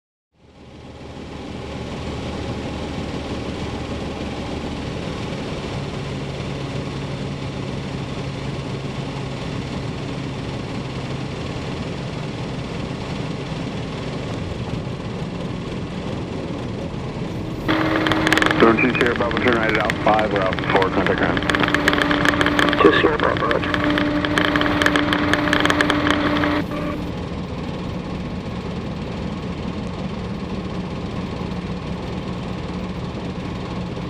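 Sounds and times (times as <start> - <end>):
aircraft engine drone: 0.4 - 34.0
low hum: 14.3 - 33.4.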